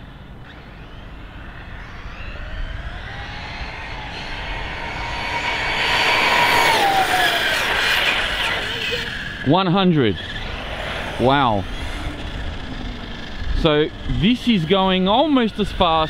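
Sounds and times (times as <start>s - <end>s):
electric motor whine: 0.0s - 9.4s.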